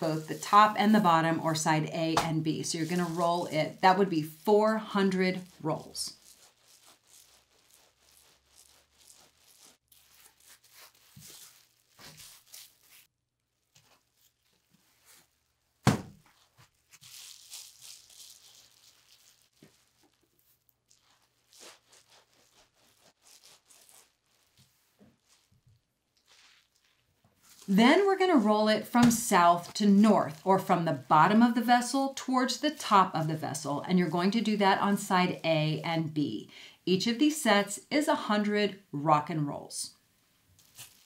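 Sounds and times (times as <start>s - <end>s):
towel bundle rubbing on table: 0.0s - 13.1s, 16.3s - 25.6s, 26.2s - 35.8s, 40.6s - 41.0s
plastic sheeting crinkling: 0.0s - 35.8s, 40.4s - 41.0s
sharp thump: 15.8s - 16.2s.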